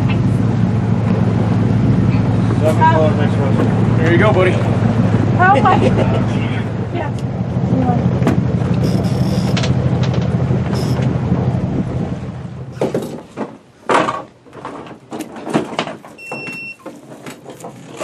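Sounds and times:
boat engine humming: 0.0 - 15.3
wind: 0.0 - 18.0
knocks and thumps handling fish: 8.1 - 11.6, 12.7 - 18.0
short high beep: 8.8 - 9.6, 10.7 - 11.0.

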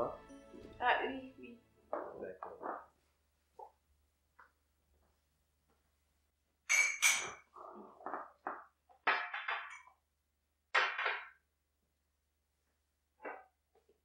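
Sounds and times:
ceramic mugs clinking on glass: 6.7 - 7.4.

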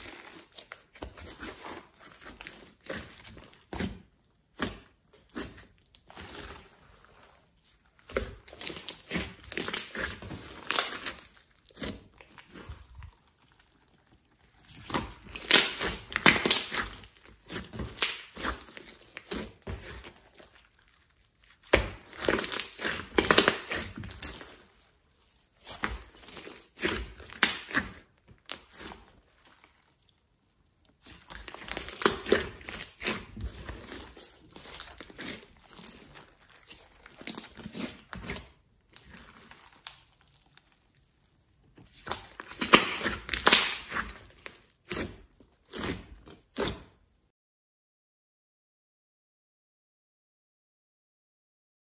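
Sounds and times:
hands squishing slime: 0.0 - 47.0.

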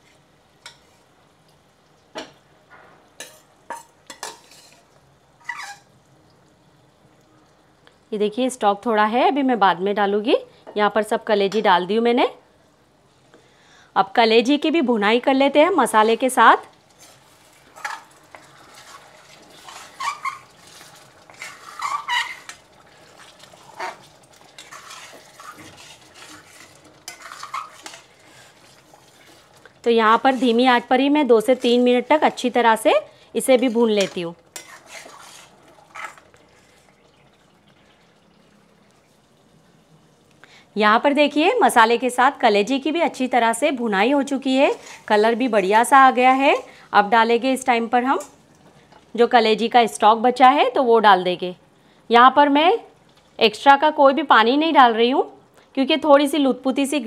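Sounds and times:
metal spatula scraping a pan: 0.0 - 1.1, 3.2 - 5.9, 16.9 - 37.0, 44.2 - 46.7
faint sizzle: 0.0 - 57.0.

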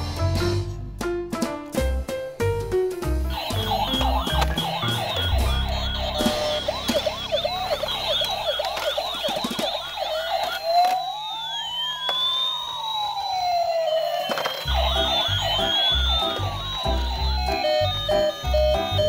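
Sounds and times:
music beat: 1.0 - 9.6, 14.7 - 19.0
slow rising and falling siren: 3.3 - 19.0
toy sirens warbling: 3.3 - 19.0.

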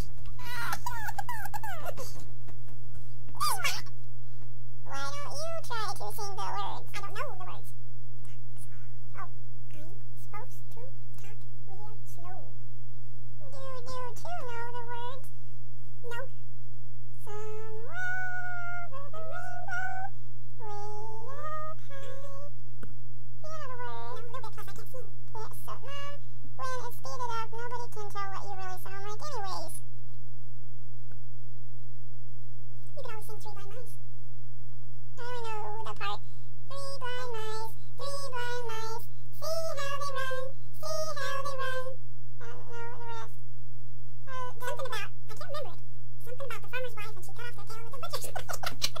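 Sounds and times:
sped-up squeaky voice: 0.0 - 2.2, 3.3 - 3.9, 4.9 - 7.7, 8.3 - 12.5, 13.4 - 15.3, 16.0 - 16.4, 17.2 - 22.5, 23.4 - 29.8, 33.0 - 34.0, 35.2 - 43.4, 44.3 - 49.0
steady low hum: 0.0 - 49.0.

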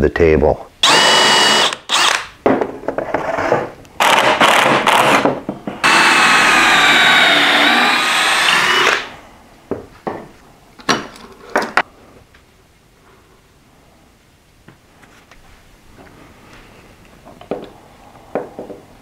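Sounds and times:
cordless drill driving screws: 0.8 - 2.3, 4.0 - 5.2, 5.8 - 9.1.

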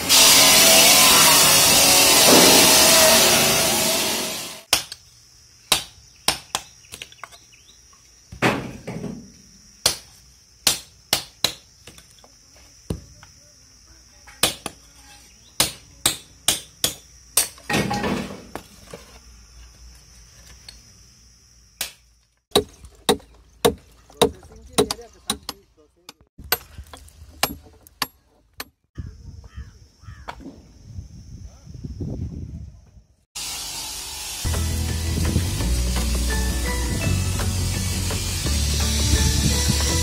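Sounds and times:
stone-cutting saw cutting slate: 0.0 - 4.7
water spraying: 33.4 - 40.0.

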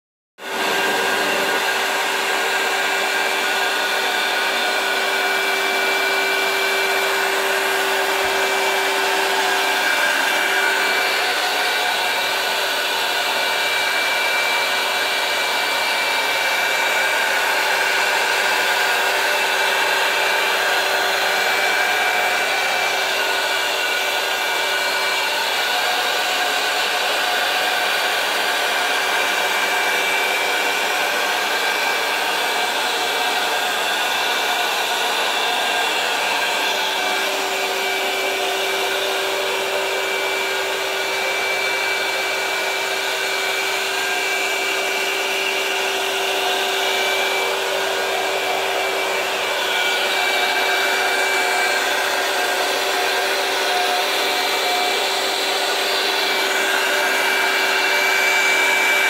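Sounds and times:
vacuum motor running: 0.4 - 59.0.

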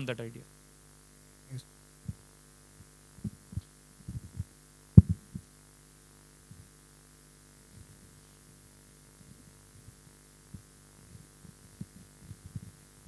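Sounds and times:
electrical mains hum: 0.0 - 13.0
dull low thumps: 3.2 - 5.5.

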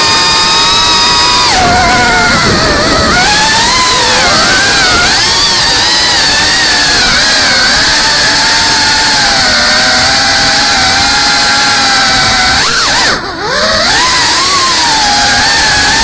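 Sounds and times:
drone motors whining: 0.0 - 16.0.

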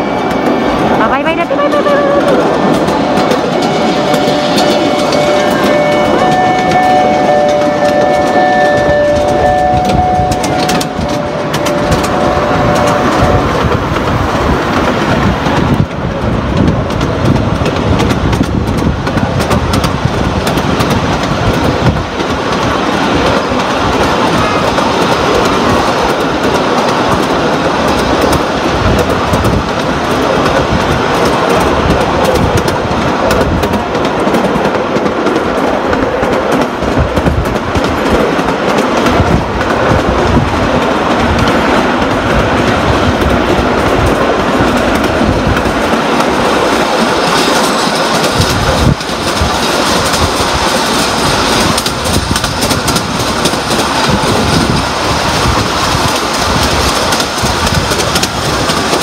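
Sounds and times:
train wheels on rails: 0.0 - 59.0
held tones: 1.4 - 13.7.

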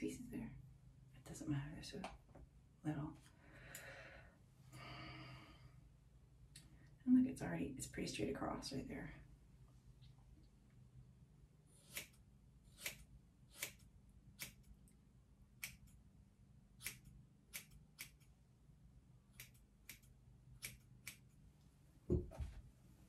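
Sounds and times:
scissors snipping hair: 11.8 - 15.0, 15.6 - 16.0, 16.8 - 18.4, 19.3 - 21.4
dull thump: 22.1 - 22.6.

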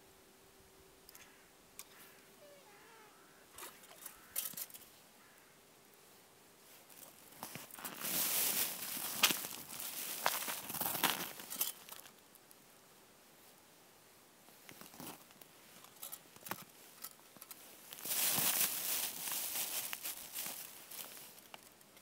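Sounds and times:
plastic bag crinkling and rustling: 7.0 - 12.2, 17.9 - 21.6.

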